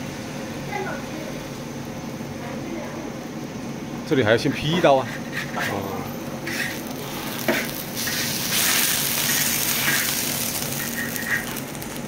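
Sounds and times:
scraper scraping a wok: 4.4 - 5.8, 6.4 - 11.6
sizzling hiss: 6.4 - 12.0.

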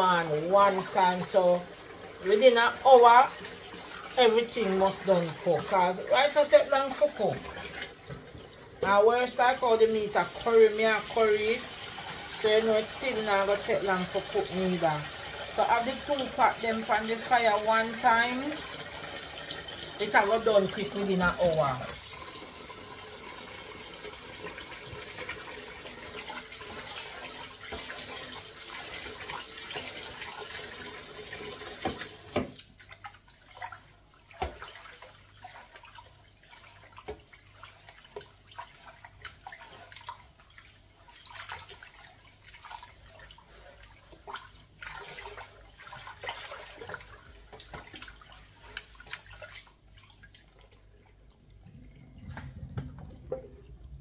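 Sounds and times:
kitchen tap running: 0.0 - 54.0
water splashing: 24.1 - 54.0.

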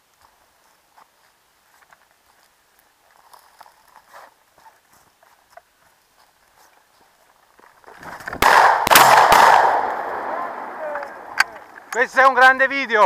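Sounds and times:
footsteps through dry grass: 0.0 - 8.5.

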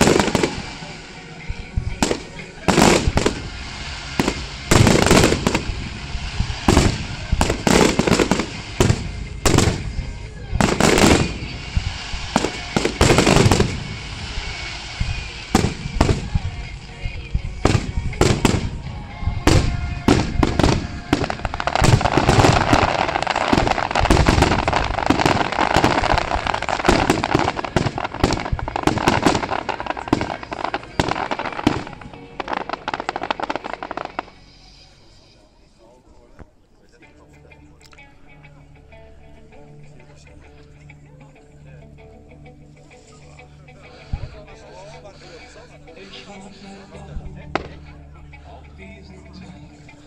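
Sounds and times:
firework crackling: 0.0 - 36.4, 42.8 - 48.2
firework shells bursting: 1.8 - 17.0, 17.6 - 34.4.

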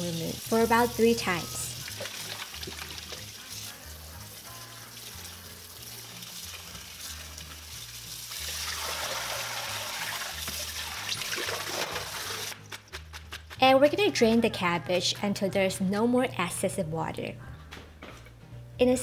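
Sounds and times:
soft background music: 0.0 - 19.0
tap water splashing onto leaves: 0.9 - 3.4, 8.3 - 12.2.

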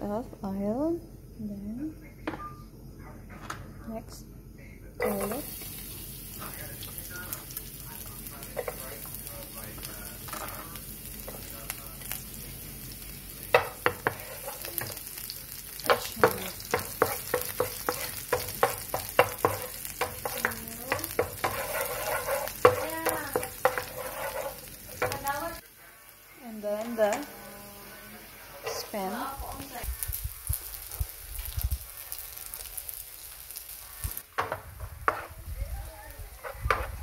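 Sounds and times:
garlic sizzling in hot oil: 5.0 - 37.0
spatula scraping a pan: 10.2 - 11.4, 13.5 - 15.0, 15.9 - 25.6, 34.4 - 35.4, 36.3 - 37.0.

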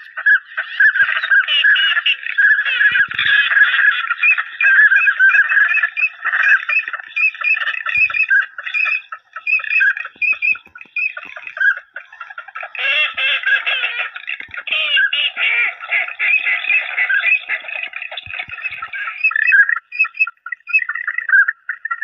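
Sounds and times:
waterfowl honking: 0.0 - 22.0.

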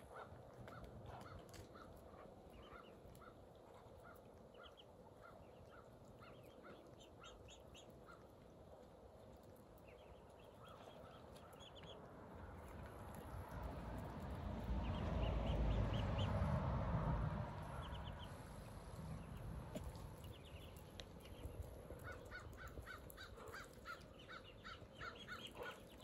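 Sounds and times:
faint bird calls: 21.4 - 26.0.

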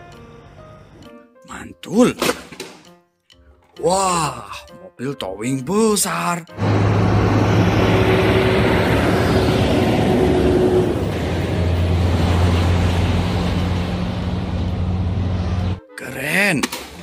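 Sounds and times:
diesel truck driving past: 6.5 - 15.8.

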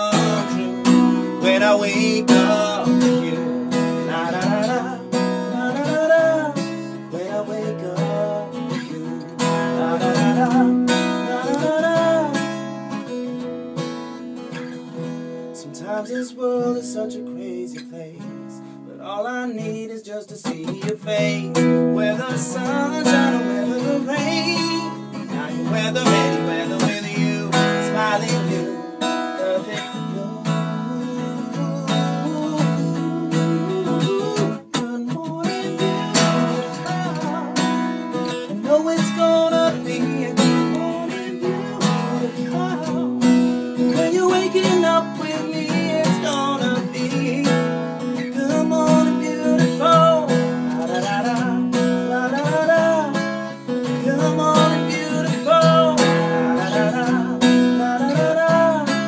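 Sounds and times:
man singing: 0.0 - 13.2, 15.5 - 59.0
acoustic guitar strumming chords: 0.0 - 59.0.

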